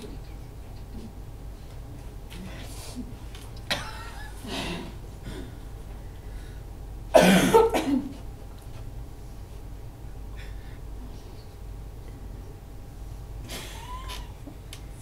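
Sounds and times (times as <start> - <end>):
person coughing: 7.1 - 8.2.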